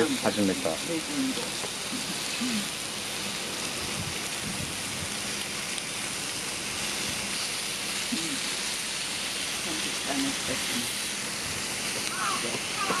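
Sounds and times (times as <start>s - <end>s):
food sizzling in a pan: 0.0s - 13.0s.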